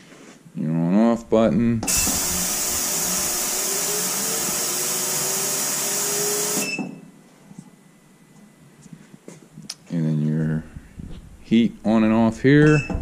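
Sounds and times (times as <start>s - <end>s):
ultrasonic cleaner hissing: 1.9s - 6.6s.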